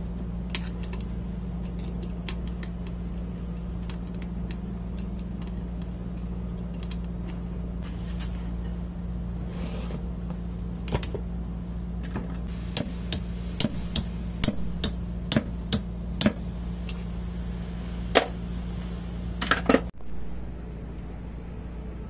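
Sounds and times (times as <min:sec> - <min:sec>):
steady low hum: 0:00.0 - 0:22.0
metal tools tapping on metal: 0:13.1 - 0:17.2, 0:19.4 - 0:19.9.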